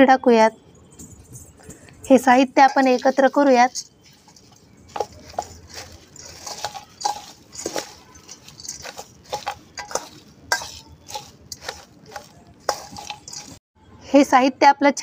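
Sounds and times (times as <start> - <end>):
spoon clinking and scraping bowl: 2.6 - 13.6.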